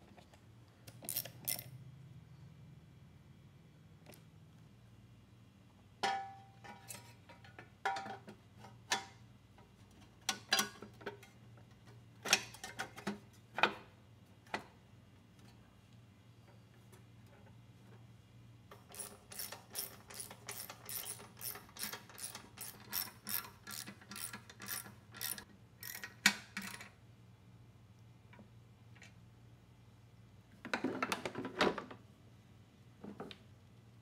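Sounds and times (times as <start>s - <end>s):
ratchet wrench clicking: 1.0s - 1.7s, 18.8s - 26.2s.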